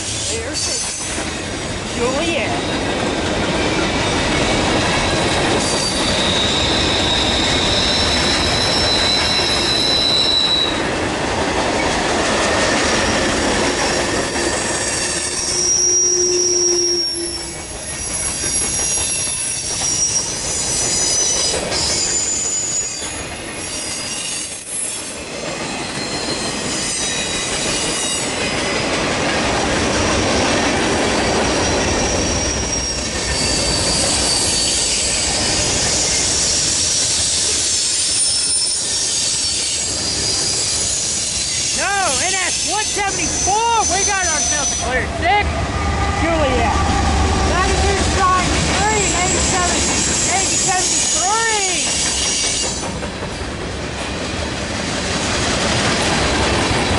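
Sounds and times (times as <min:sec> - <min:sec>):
train wheels rumbling on rails: 0:00.0 - 0:56.9
high-pitched wheel squeals: 0:05.0 - 0:10.8, 0:13.0 - 0:28.8, 0:31.2 - 0:45.0, 0:48.8 - 0:52.8.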